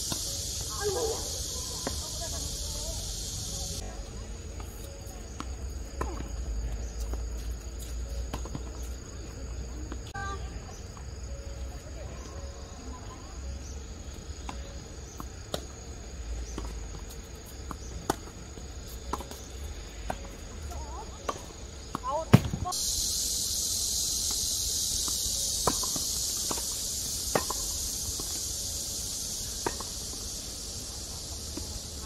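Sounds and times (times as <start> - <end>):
insects hissing: 0.0 - 32.0
tennis balls hit by rackets: 14.3 - 22.8, 25.0 - 28.4, 29.4 - 30.3
balls bouncing on hard court: 21.3 - 22.8.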